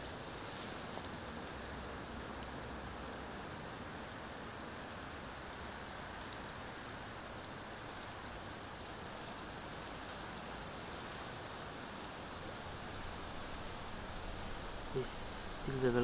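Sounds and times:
rain falling: 0:00.0 - 0:16.0
raindrops ticking: 0:04.2 - 0:11.1.

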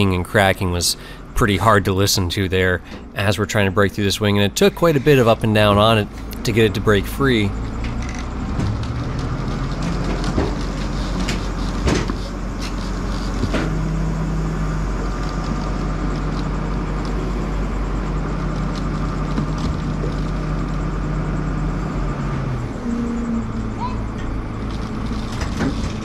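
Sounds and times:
forklift engine running: 0:00.0 - 0:26.0
aircraft wing creaking and cracking: 0:07.5 - 0:21.1, 0:24.1 - 0:26.0.

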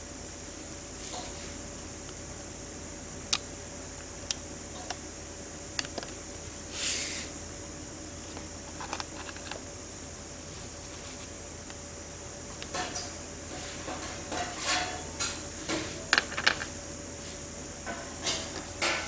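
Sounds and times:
faint steady hum: 0:00.0 - 0:19.0
short hiss: 0:06.7 - 0:07.3.

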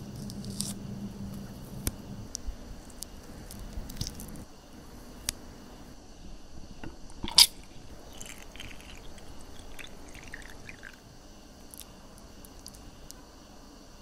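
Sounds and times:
drink pouring and splashing: 0:07.2 - 0:11.0.

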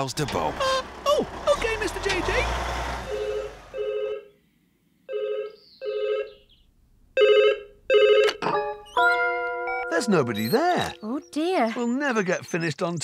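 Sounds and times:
telephone ringing: 0:03.1 - 0:04.3, 0:05.1 - 0:06.4, 0:07.2 - 0:11.7.

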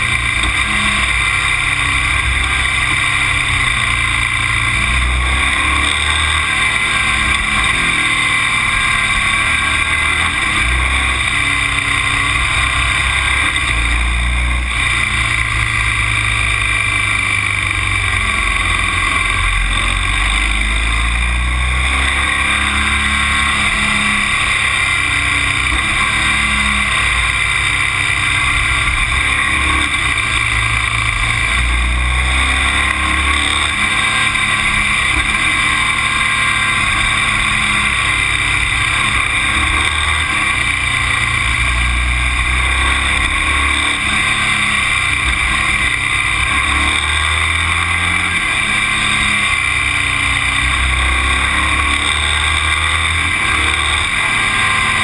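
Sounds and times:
road noise: 0:00.0 - 0:55.0
vehicle engine running: 0:00.0 - 0:55.0.

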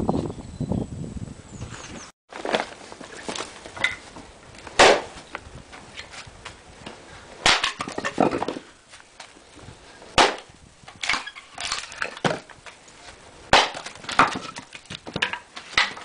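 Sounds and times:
wood cracking sharply: 0:04.7 - 0:05.2, 0:07.4 - 0:09.3, 0:10.2 - 0:12.8, 0:13.5 - 0:16.0
axe striking wood: 0:04.8 - 0:05.2, 0:07.4 - 0:08.6, 0:10.2 - 0:12.5, 0:13.5 - 0:16.0.

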